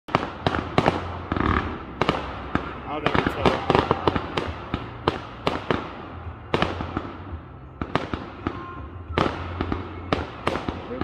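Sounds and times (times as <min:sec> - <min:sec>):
fireworks bangs: 0:00.1 - 0:11.0.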